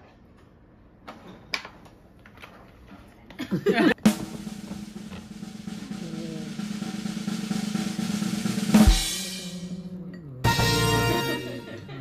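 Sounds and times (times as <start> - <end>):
drum roll: 4.0 - 11.6
cymbal crash hit: 6.6 - 9.9.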